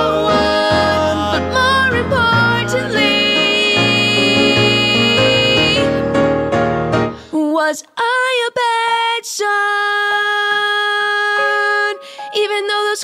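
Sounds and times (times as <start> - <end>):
person singing with vibrato: 0.0 - 6.2
piano chords: 0.0 - 7.3.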